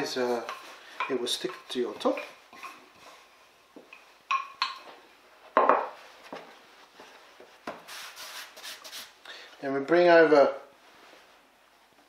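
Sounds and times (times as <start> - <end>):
dough rubbing: 6.1 - 9.2.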